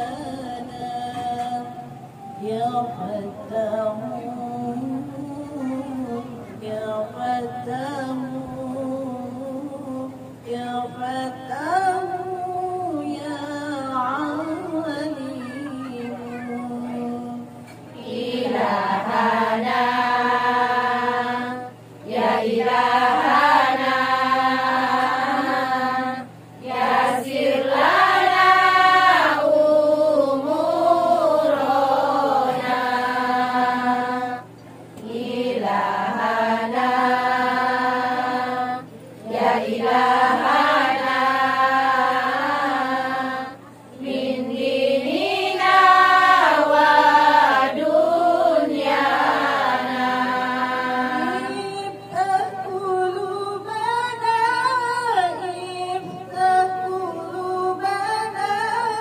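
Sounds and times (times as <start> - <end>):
women chanting in unison: 16.0 - 53.4.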